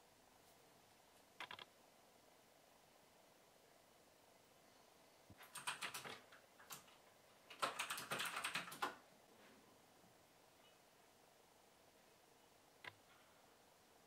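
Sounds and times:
keyboard typing: 1.4s - 1.7s, 5.4s - 9.0s.

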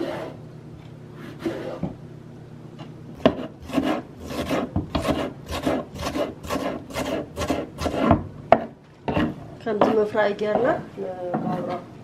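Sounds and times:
knife chopping on wooden board: 3.2s - 10.8s.

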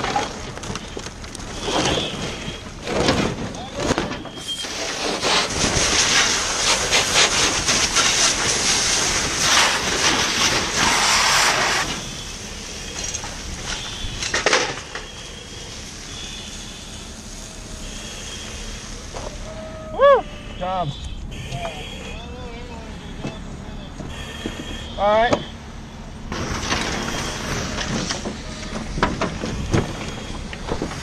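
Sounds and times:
fire crackling: 0.0s - 21.5s, 22.1s - 31.0s
fire hose stream hissing: 4.3s - 21.0s, 26.0s - 31.0s
rush of water spray: 4.5s - 14.2s.

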